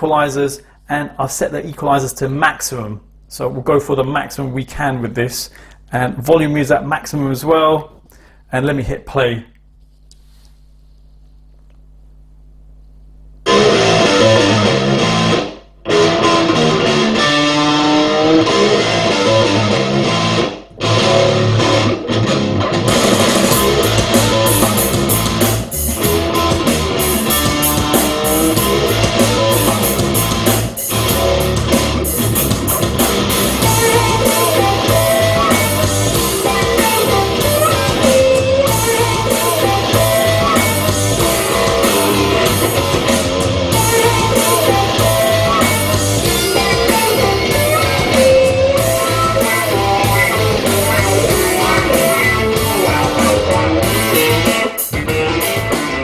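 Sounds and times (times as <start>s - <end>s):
instrumental rock music: 13.4s - 56.0s.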